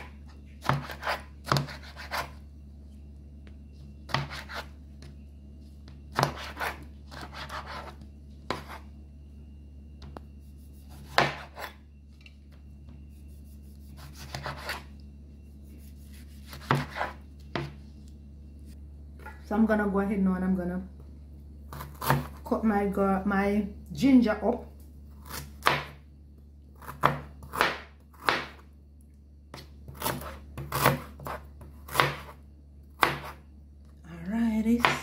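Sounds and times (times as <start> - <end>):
steady low hum: 0.0 - 35.0
knife cutting on cutting board: 0.6 - 2.4, 6.2 - 8.8, 13.7 - 14.9, 15.8 - 17.7.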